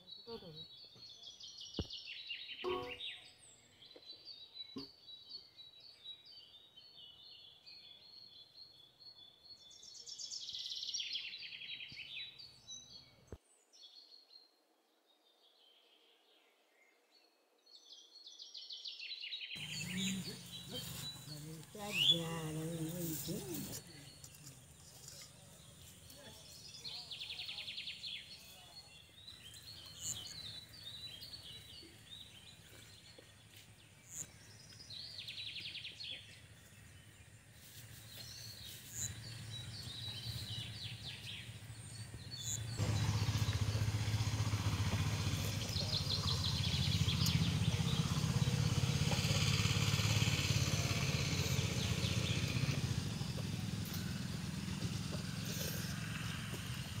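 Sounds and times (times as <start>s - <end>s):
small birds chirping: 0.0s - 14.5s, 17.7s - 57.0s
loud low rumble with hiss: 42.8s - 57.0s.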